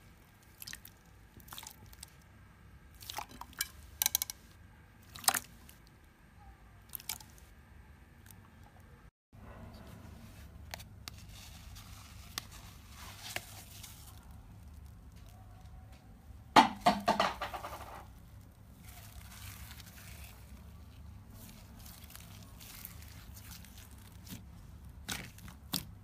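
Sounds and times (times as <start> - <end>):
slime squished by hand: 18.7 - 26.0.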